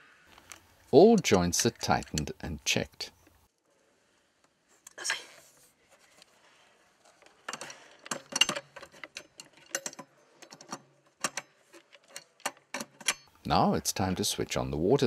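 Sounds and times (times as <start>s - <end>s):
spanner clicking on metal fittings: 0.4s - 2.4s.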